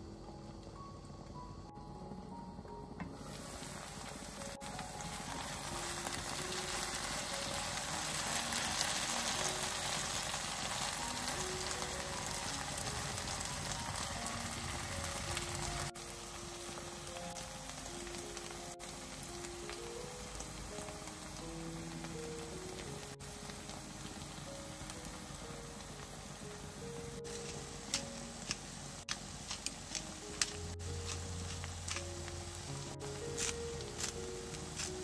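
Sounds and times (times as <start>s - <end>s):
soft music: 0.0s - 35.0s
vegetables sizzling in a pan: 3.2s - 35.0s.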